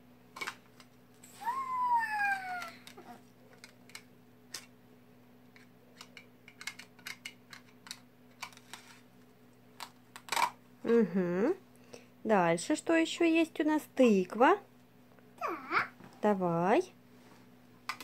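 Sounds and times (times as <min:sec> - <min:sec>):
toddler squealing: 0:01.4 - 0:03.2.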